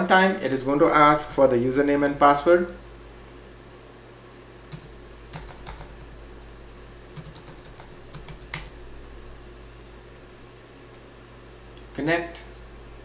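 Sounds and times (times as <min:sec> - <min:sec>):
computer keyboard typing: 0:04.7 - 0:06.5, 0:07.1 - 0:08.8.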